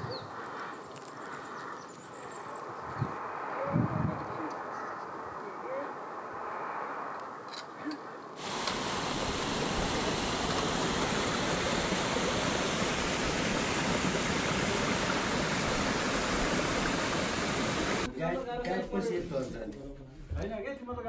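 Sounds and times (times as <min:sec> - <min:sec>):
stream water rushing: 0:08.4 - 0:18.1.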